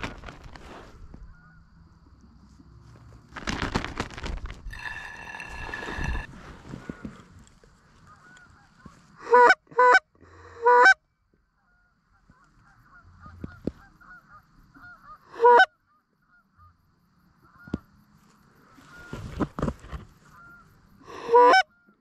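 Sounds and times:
faint goose calling: 0:01.1 - 0:01.8, 0:04.7 - 0:19.4, 0:20.1 - 0:22.0
loud goose honks: 0:08.1 - 0:11.0, 0:11.6 - 0:16.8, 0:20.3 - 0:22.0.

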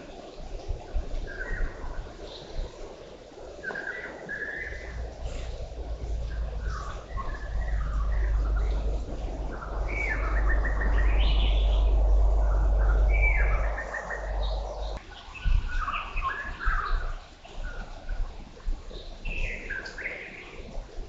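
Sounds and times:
birds chirping and calling: 0:03.7 - 0:17.8
low rumbling noise: 0:04.4 - 0:16.6.

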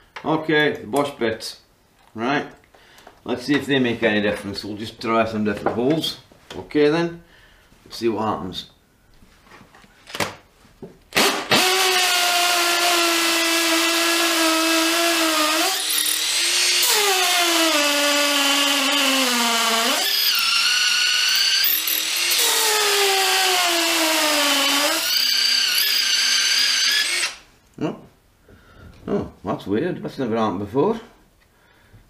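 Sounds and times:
drill motor whine into brick: 0:11.2 - 0:27.4.

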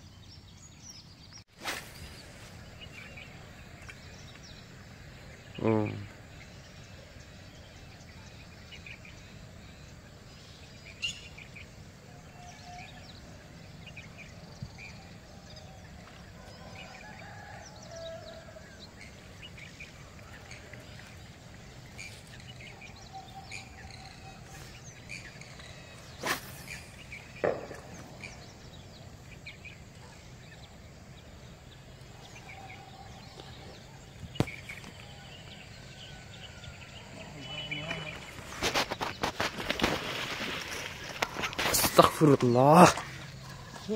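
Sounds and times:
short bird chirps: 0:22.0 - 0:28.5.

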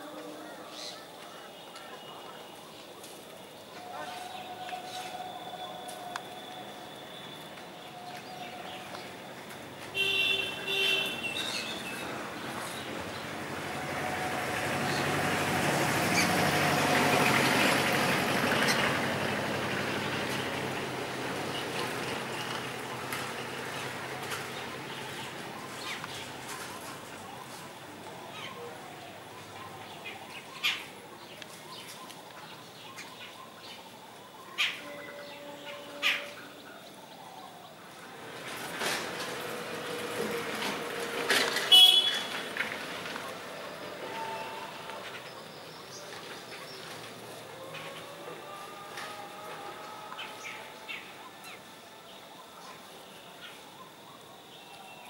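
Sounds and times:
vehicle engine and tyre noise: 0:06.1 - 0:28.4, 0:38.0 - 0:44.0.

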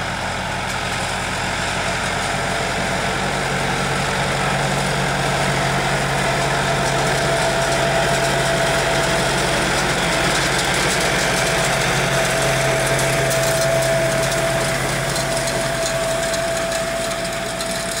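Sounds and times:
tractor diesel engine running: 0:00.0 - 0:18.0.

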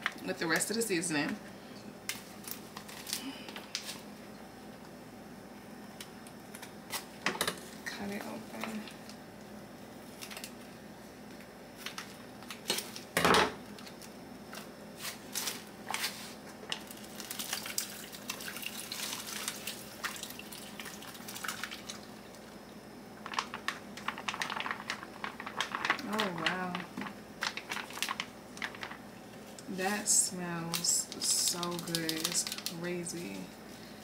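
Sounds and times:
liquid pouring: 0:17.2 - 0:22.4.

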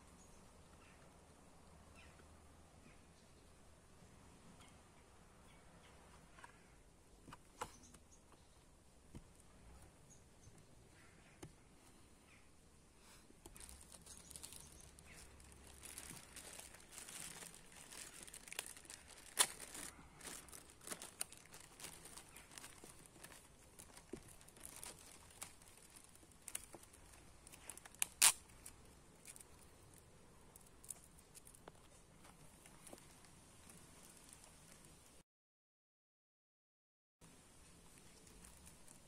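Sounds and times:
plastic bag crinkling: 0:13.4 - 0:29.9, 0:32.5 - 0:35.1, 0:38.0 - 0:39.0.

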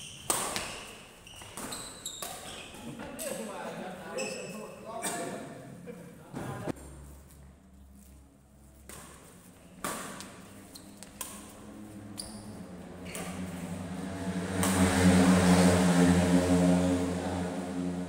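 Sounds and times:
rackets hitting shuttlecock: 0:00.1 - 0:02.8, 0:08.7 - 0:11.7, 0:14.5 - 0:15.0
engine-like drone: 0:11.2 - 0:18.0.

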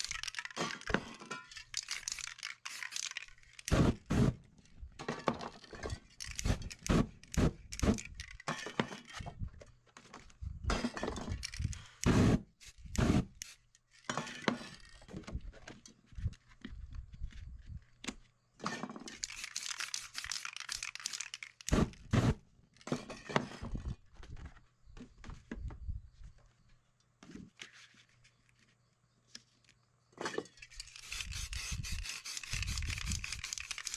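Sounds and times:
spray can hissing: 0:01.8 - 0:04.3, 0:12.6 - 0:13.6, 0:19.2 - 0:22.0, 0:30.8 - 0:33.9.

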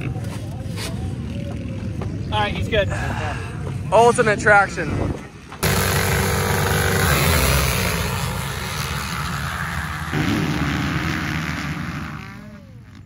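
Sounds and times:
motocross bikes accelerating: 0:05.6 - 0:13.0.

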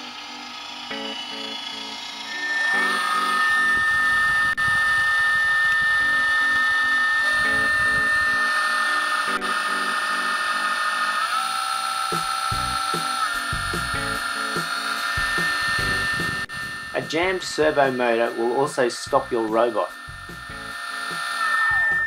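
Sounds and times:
electric motor whine: 0:00.0 - 0:22.0.

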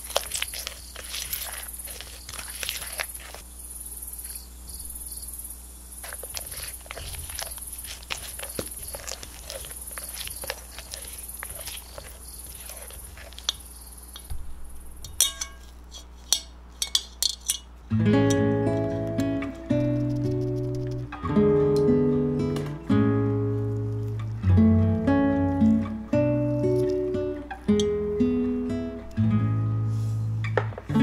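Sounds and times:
spatula scraping batter in bowl: 0:00.0 - 0:03.4, 0:06.0 - 0:14.3
metal sieve clinking on glass bowl: 0:15.1 - 0:17.7.

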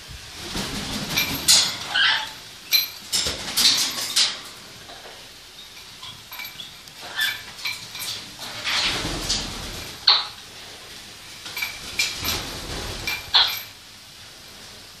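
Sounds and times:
wings flapping: 0:00.4 - 0:01.9
squeaky parrot noises: 0:01.8 - 0:02.4.

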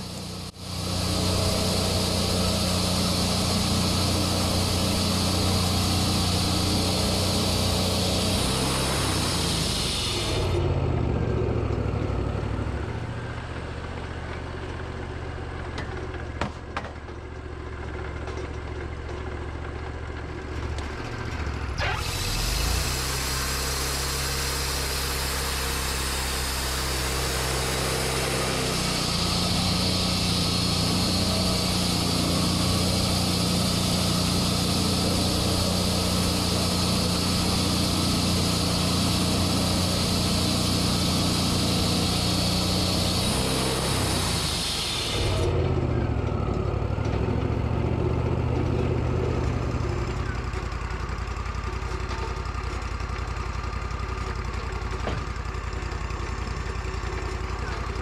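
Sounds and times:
band blade hissing through wood: 0:00.0 - 0:10.7, 0:21.8 - 0:45.5
sawmill engine running: 0:00.0 - 0:58.0.

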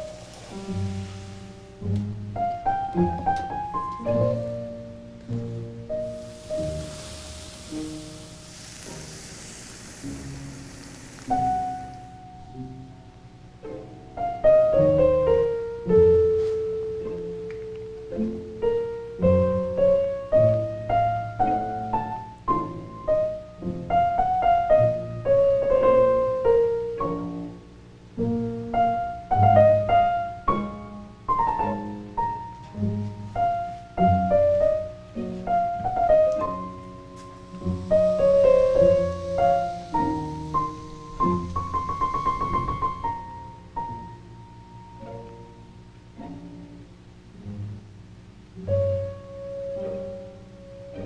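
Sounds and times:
gentle piano music: 0:00.0 - 0:51.0.

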